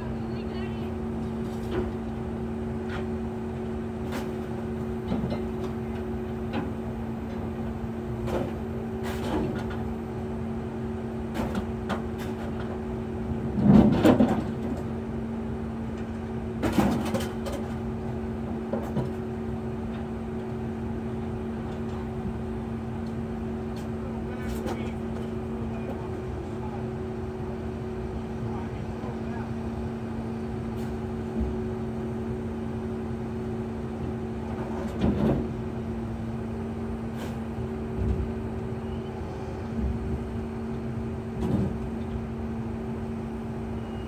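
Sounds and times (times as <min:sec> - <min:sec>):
scrap metal clanking and scraping: 0:08.2 - 0:09.8.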